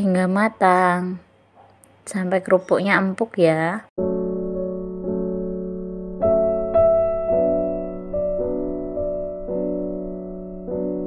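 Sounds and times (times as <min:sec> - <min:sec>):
slow piano melody: 0:04.0 - 0:11.0.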